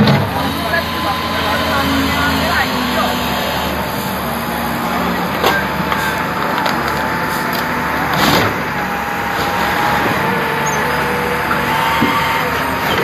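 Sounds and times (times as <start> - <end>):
heavy machine engine running: 0.0 - 13.0
speaker boxes crunching: 5.0 - 10.9.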